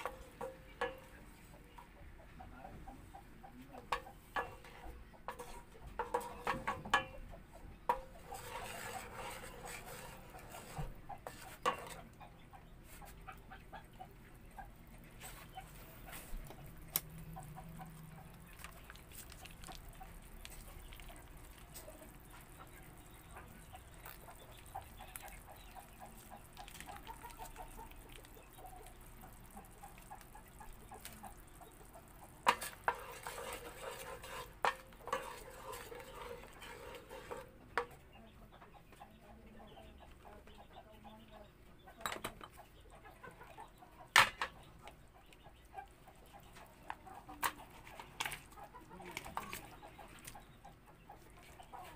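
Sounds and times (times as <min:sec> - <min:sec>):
chickens clucking: 0:00.0 - 0:51.9
utensil clinking against pan: 0:03.9 - 0:07.2, 0:32.4 - 0:37.9.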